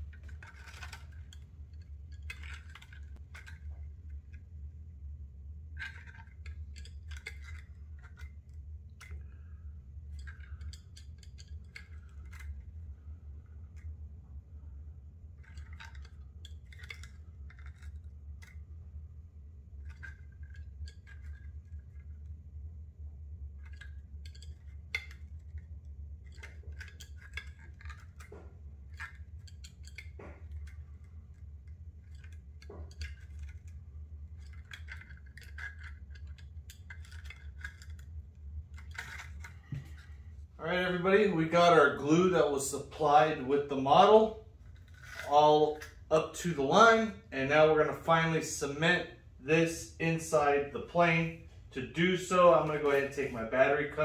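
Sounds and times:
clicks and rattles of handled motor: 0:00.0 - 0:04.6, 0:05.7 - 0:13.0, 0:15.3 - 0:18.8, 0:19.6 - 0:22.3, 0:23.5 - 0:40.5, 0:43.9 - 0:46.2
steady low hum: 0:00.0 - 0:54.0.

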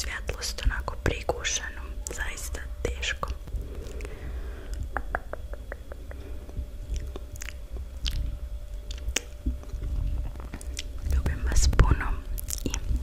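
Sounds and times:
wet mouth clicks and smacks: 0:04.7 - 0:06.3, 0:06.9 - 0:09.7, 0:10.4 - 0:11.2, 0:12.4 - 0:12.8.

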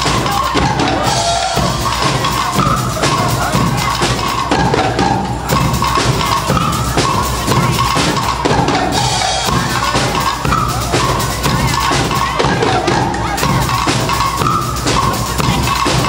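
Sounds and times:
bass drum and snare beating: 0:00.0 - 0:16.0
brass band playing loudly: 0:00.0 - 0:16.0.

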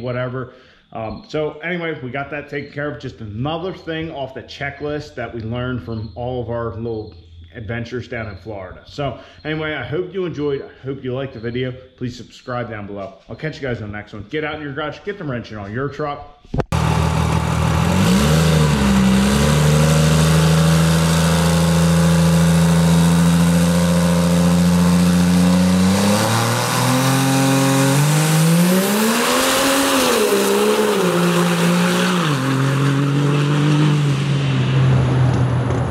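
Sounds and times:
diesel truck engine revving: 0:16.7 - 0:35.9.

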